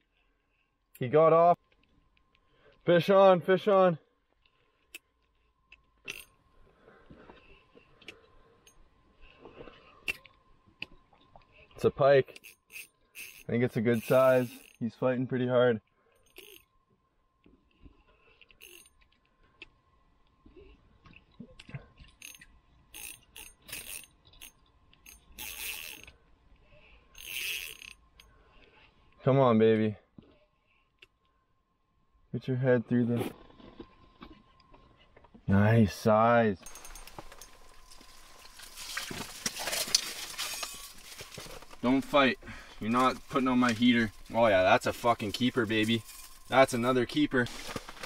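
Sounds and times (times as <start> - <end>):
fishing reel clicks and rustling: 4.4 - 6.4, 7.4 - 15.0, 16.0 - 16.8, 17.6 - 19.8, 21.2 - 29.2, 36.6 - 48.0
fishing reel ratcheting: 6.1 - 6.4, 12.3 - 14.8, 16.2 - 16.7, 18.5 - 19.0, 22.2 - 26.2, 26.8 - 28.3.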